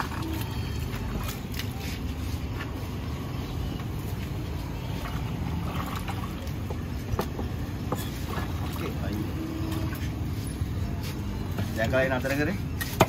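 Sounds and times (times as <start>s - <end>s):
low outdoor rumble: 0.0s - 11.8s.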